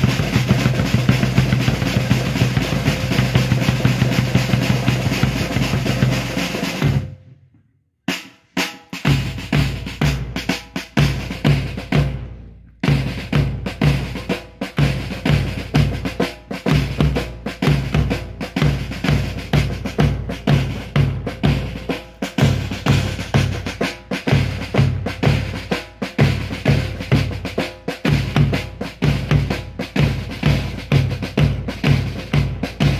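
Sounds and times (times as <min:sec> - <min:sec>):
drum roll: 0:00.0 - 0:07.4, 0:08.1 - 0:32.9
marching bass drum and snare: 0:00.0 - 0:32.9.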